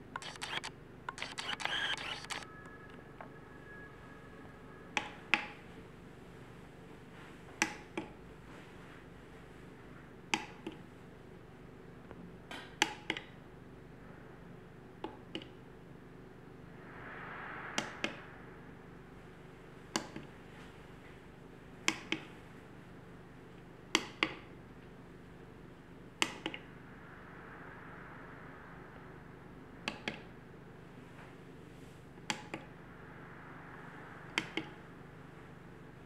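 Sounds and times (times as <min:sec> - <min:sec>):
faint steady hum: 0:00.0 - 0:36.0
remote control buttons clicking: 0:00.2 - 0:02.4.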